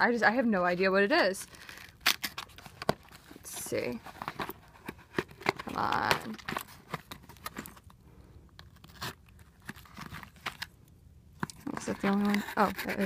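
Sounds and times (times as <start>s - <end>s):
knife cutting cardboard box: 11.6s - 13.0s.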